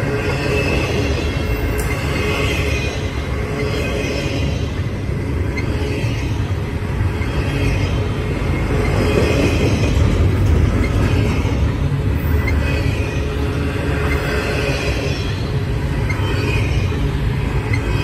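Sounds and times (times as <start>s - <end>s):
freight train rolling past: 0.0s - 18.0s
steel wheels on rails: 0.0s - 18.0s.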